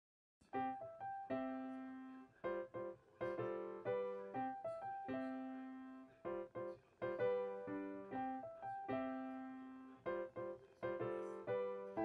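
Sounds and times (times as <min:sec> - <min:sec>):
gentle piano melody: 0:00.4 - 0:12.0.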